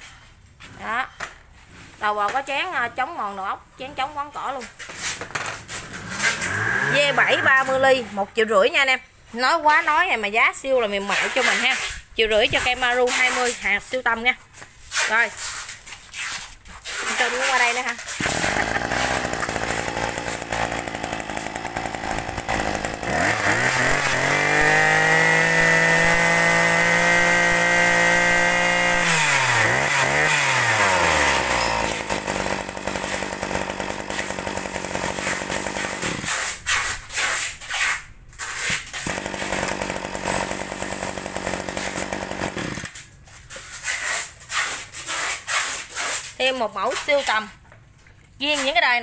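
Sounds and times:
brush cutter engine revving: 0:05.9 - 0:08.0, 0:17.2 - 0:36.4, 0:38.9 - 0:43.0.

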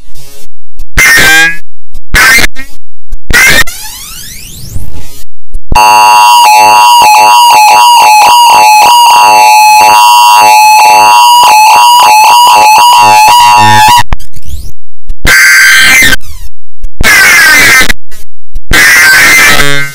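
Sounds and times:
warbling electronic sweeps: 0:00.2 - 0:05.4
short electronic bursts: 0:00.2 - 0:05.5, 0:14.4 - 0:19.9
high alarm tone: 0:00.3 - 0:19.9.

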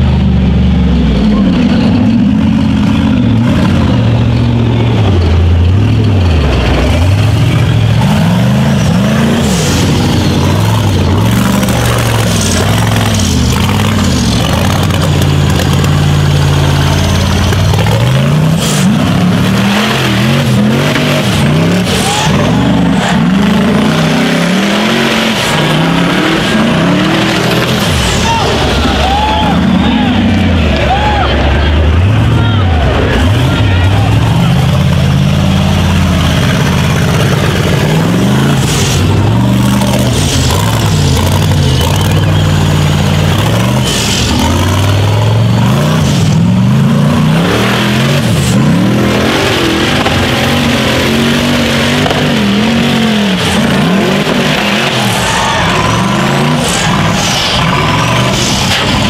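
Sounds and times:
buggy engine revving: 0:00.0 - 0:59.0.

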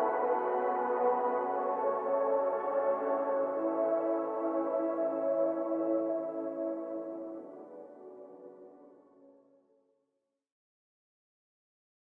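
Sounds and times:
ambient music with sustained chords: 0:00.0 - 0:09.6.

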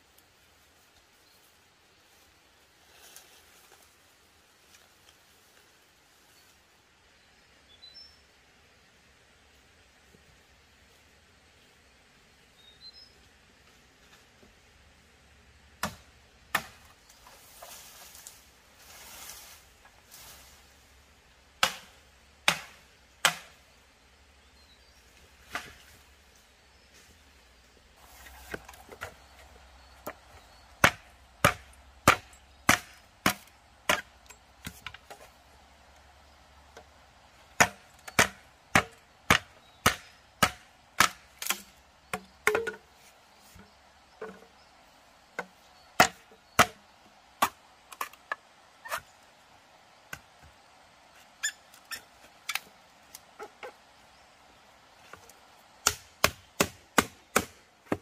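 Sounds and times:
machete chopping bamboo: 0:15.8 - 0:16.9, 0:21.6 - 0:23.6, 0:30.0 - 0:35.3, 0:37.5 - 0:42.9, 0:45.4 - 0:46.8, 0:47.4 - 0:49.0, 0:55.8 - 0:58.0.

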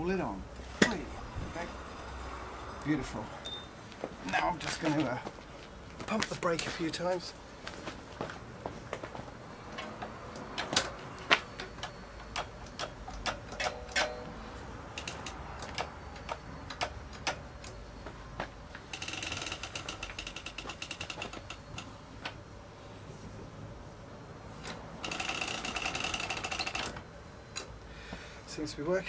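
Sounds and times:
chain ticking over sprocket: 0:14.9 - 0:17.4, 0:18.9 - 0:21.9, 0:25.0 - 0:26.9.

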